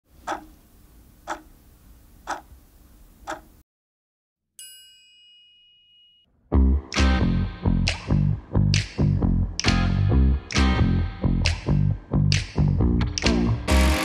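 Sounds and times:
clock ticking: 0.2s - 0.6s, 1.2s - 1.5s, 2.3s - 2.5s, 3.2s - 3.5s
bell-like chime: 4.6s - 6.3s
loud music with heavy bass: 6.6s - 14.0s.

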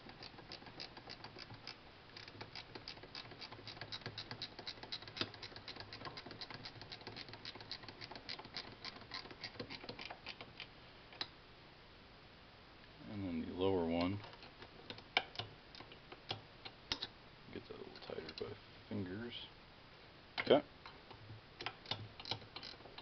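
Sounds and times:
ratcheting wrench clicking: 0.0s - 10.5s, 21.6s - 23.0s.

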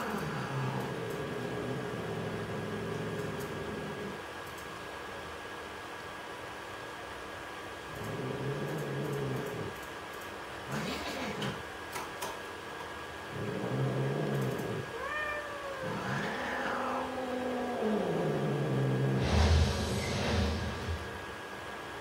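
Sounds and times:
cats yowling and growling: 0.0s - 4.2s, 13.3s - 19.2s.

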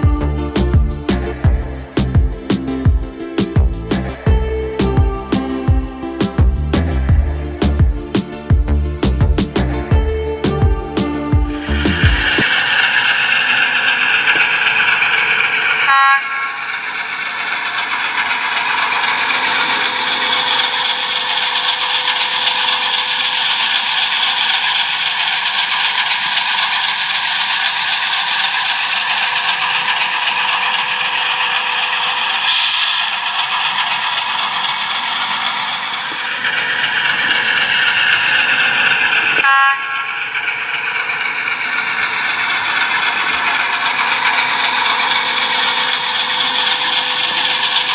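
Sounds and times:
model diesel engine sound: 0.0s - 47.9s
model train wheels rattling: 11.5s - 47.9s
short horn toot: 15.9s - 16.7s, 39.4s - 40.2s.

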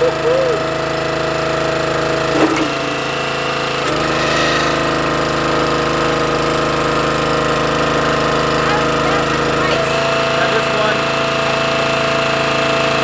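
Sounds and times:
log splitter gas engine running: 6.6s - 13.0s.

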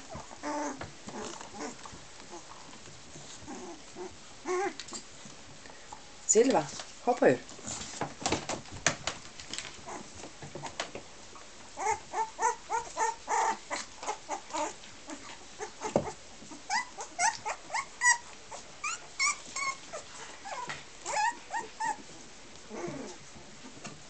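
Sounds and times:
puppies whimpering and yipping: 0.0s - 2.6s, 3.2s - 4.9s, 9.8s - 10.8s, 11.8s - 23.3s.

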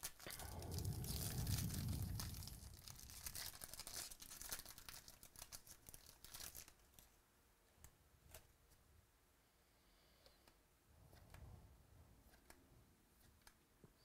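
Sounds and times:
foil wrapper tearing and crinkling: 0.0s - 7.1s.

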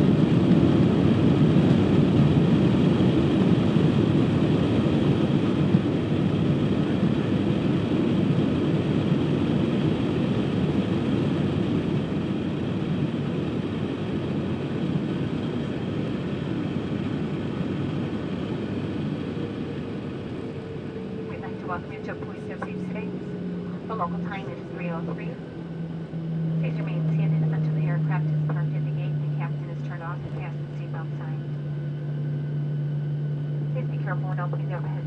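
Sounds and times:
engine and wheel rumble: 0.0s - 33.9s
faint whine: 19.4s - 35.0s.

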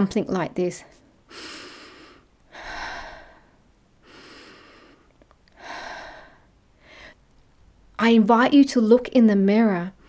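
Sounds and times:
woman breathing effortfully: 1.2s - 7.2s.

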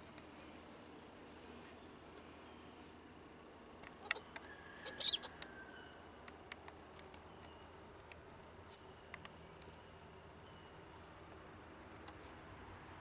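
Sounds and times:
high insect drone: 0.0s - 13.0s
sharp high-pitched chirps: 4.8s - 5.3s.

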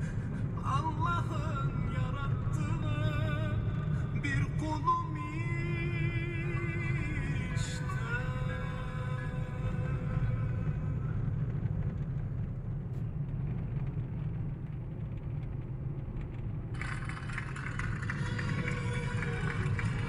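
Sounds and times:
car engine and tyres rumbling: 0.0s - 20.0s
music: 16.8s - 20.0s.

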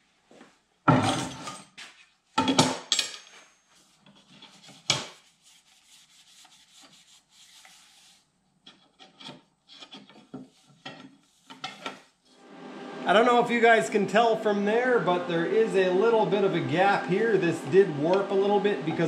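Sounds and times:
metal scraping on metal: 8.7s - 12.5s.

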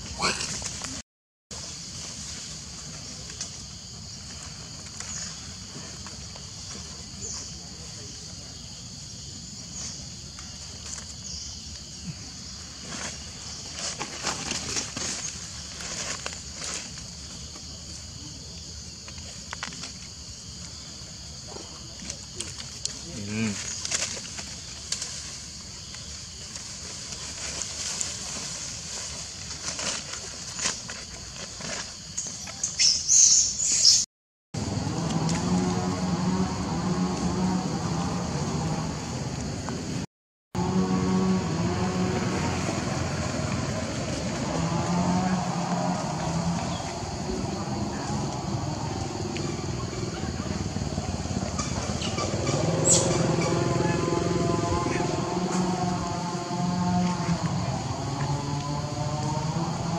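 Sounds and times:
rustling of dry leaf litter: 12.3s - 18.5s, 21.8s - 32.8s.

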